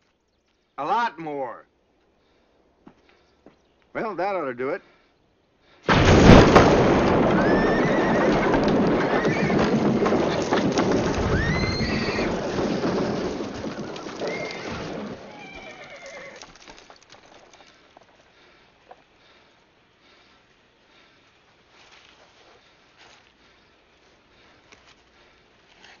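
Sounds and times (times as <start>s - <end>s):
dynamite blast: 5.8s - 9.0s
falling wreckage rushing: 5.9s - 15.8s
horses whinnying: 7.1s - 16.9s.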